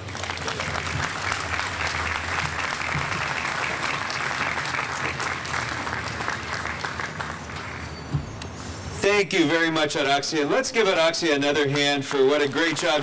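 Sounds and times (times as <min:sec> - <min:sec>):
crowd applauding: 0:00.0 - 0:08.0, 0:12.1 - 0:13.0.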